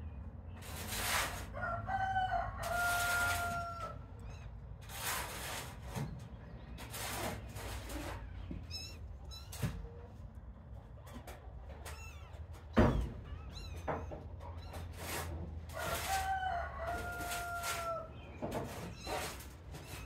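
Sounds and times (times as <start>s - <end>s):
rooster crowing: 1.5s - 4.0s, 15.7s - 18.1s.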